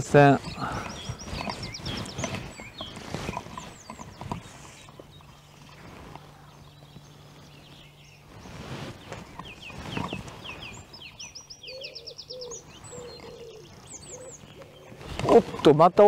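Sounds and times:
songbird chirping: 0.0s - 16.0s
bird wavering call: 7.8s - 15.1s.

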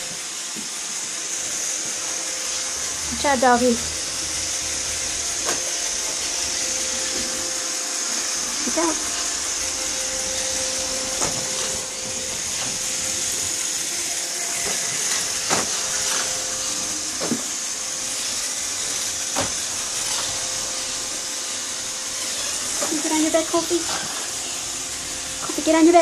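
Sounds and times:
robot vacuum running: 0.0s - 26.0s.

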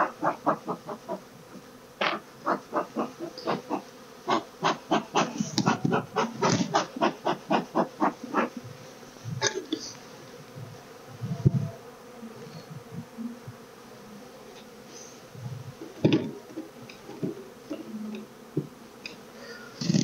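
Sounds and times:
wooden hive frames knocking: 0.0s - 8.8s, 15.8s - 17.7s, 18.4s - 18.8s
honeybees buzzing: 0.0s - 20.0s.

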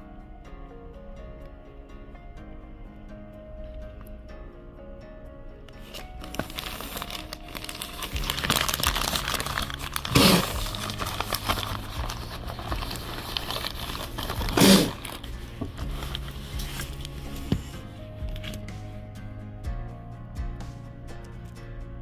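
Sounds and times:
soft background music: 0.0s - 22.0s
plastic wrapping crinkling: 5.8s - 18.7s.

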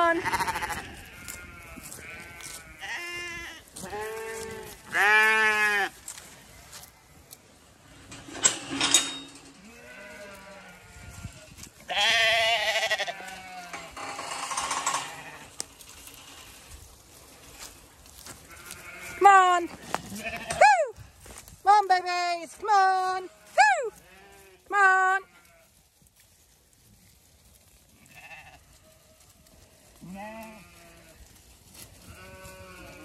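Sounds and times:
lambs bleating: 0.0s - 6.2s, 9.6s - 16.6s, 18.2s - 20.9s, 23.0s - 25.8s, 27.9s - 28.8s, 30.0s - 31.2s, 32.0s - 33.0s.

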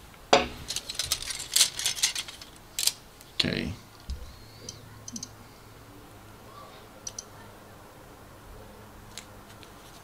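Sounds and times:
plastic sprues clicking: 0.7s - 3.0s.

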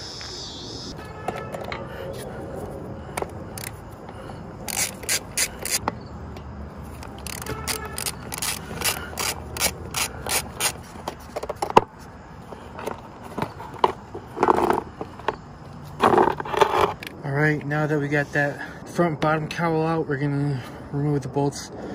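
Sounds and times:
hand ratchet clicking: 3.5s - 3.8s, 4.6s - 5.8s, 7.0s - 10.8s.

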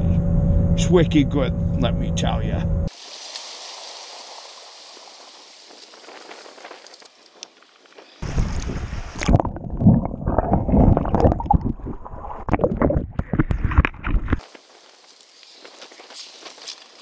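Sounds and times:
seawater sloshing and gurgling: 8.2s - 14.4s.

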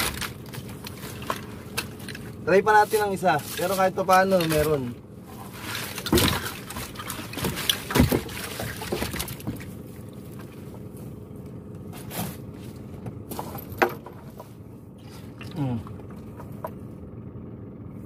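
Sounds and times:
faint steady hum: 0.0s - 18.0s
water trickling and splashing: 0.1s - 10.9s, 15.0s - 16.4s.

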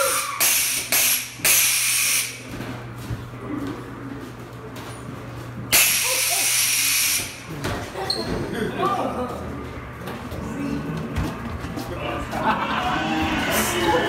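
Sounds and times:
pneumatic air hissing bursts: 0.0s - 2.4s, 5.7s - 7.4s
steady low hum: 0.0s - 14.0s.

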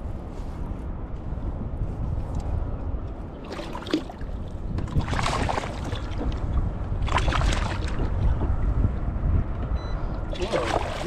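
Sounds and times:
strong wind buffeting microphone: 0.0s - 11.0s
water splashing against kayak hull: 3.4s - 8.6s, 10.3s - 11.0s.

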